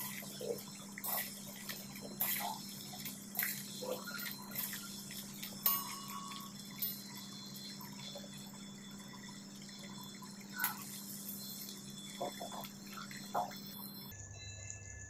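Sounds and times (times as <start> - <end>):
food deep-frying in oil: 0.0 - 15.0
strainer clinking against pan: 1.0 - 7.4.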